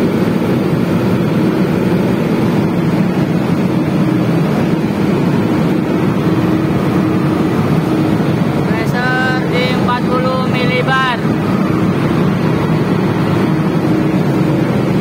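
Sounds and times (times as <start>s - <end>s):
faint steady hum: 0.0s - 15.0s
gas burner roaring: 0.0s - 15.0s.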